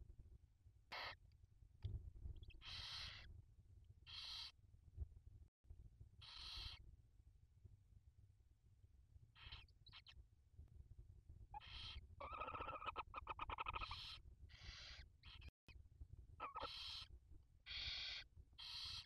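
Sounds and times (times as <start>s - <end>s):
owl chicks hissing: 2.6s - 3.3s, 4.1s - 4.6s, 6.2s - 6.8s, 11.6s - 15.5s, 16.4s - 17.1s, 17.7s - 19.0s
chittering call: 6.2s - 6.8s, 11.6s - 15.5s, 16.4s - 17.1s, 17.7s - 19.0s.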